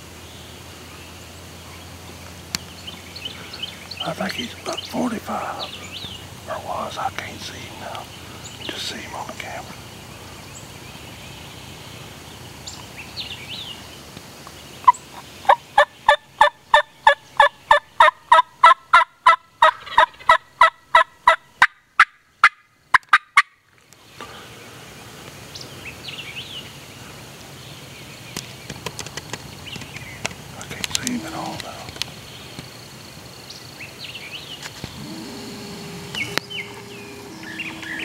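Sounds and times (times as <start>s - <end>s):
faint songbird chirps: 0.1s - 18.0s, 24.0s - 38.0s
wild turkey calling: 2.8s - 10.4s, 14.8s - 23.5s, 30.6s - 32.2s.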